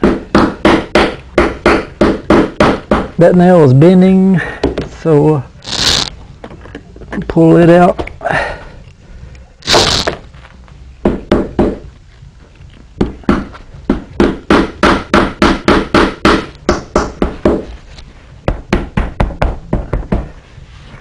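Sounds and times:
short scraping: 5.6s - 6.1s.

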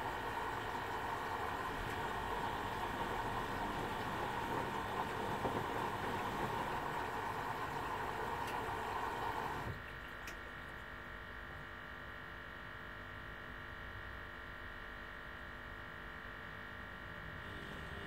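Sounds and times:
water flowing in hiss: 0.0s - 9.7s
washing machine hum: 0.0s - 11.8s, 17.0s - 18.0s.

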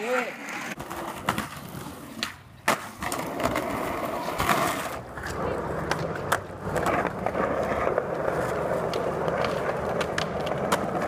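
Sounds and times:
skateboard wheels rolling on concrete: 0.0s - 11.0s.

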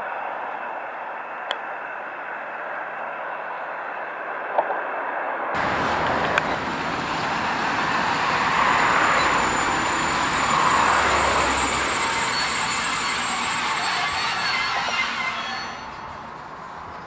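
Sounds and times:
steel wheels rolling on track: 5.6s - 17.0s.

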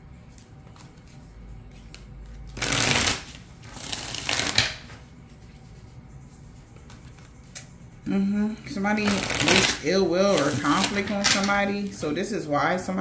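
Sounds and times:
cards being shuffled: 0.2s - 5.6s, 6.5s - 7.6s, 9.0s - 11.5s.

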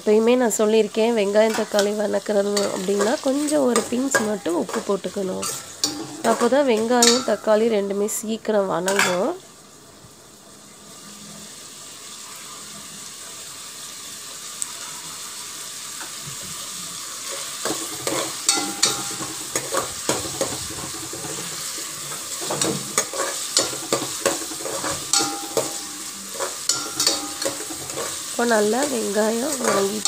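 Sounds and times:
onions sizzling in oil: 0.0s - 30.0s
spoon scraping a pot: 17.3s - 28.3s.

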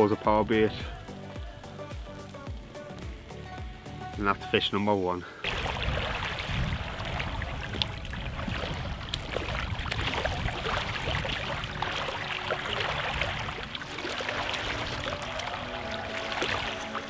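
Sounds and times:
small splashes and ticks: 5.4s - 17.0s
small waves lapping on stony shore: 5.4s - 17.0s
wind rumbling on microphone: 5.5s - 16.8s.

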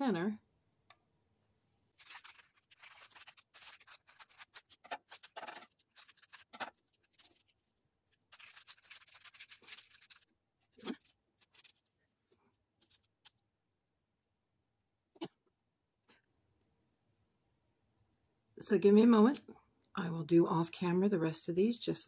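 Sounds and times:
plastic bag crinkling: 2.0s - 7.6s, 8.2s - 12.0s.

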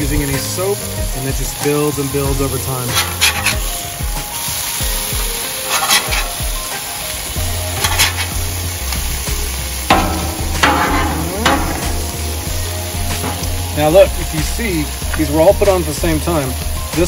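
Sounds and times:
burger patties sizzling on griddle: 0.0s - 17.0s
metal spatula scraping steel: 2.8s - 3.8s, 5.6s - 6.4s, 7.7s - 8.5s, 9.9s - 13.9s.

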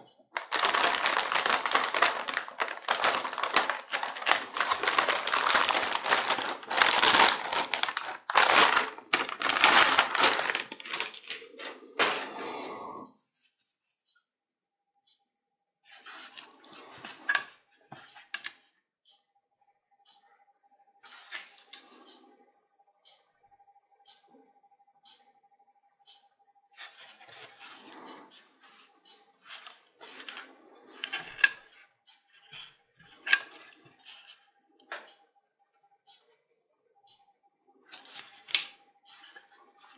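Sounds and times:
plastic bag crinkling: 0.3s - 12.4s, 29.5s - 31.6s.

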